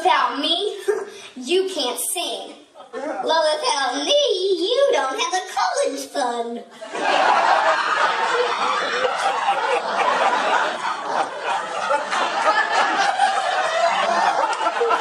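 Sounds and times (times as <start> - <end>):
audience laughing: 6.7 - 15.0.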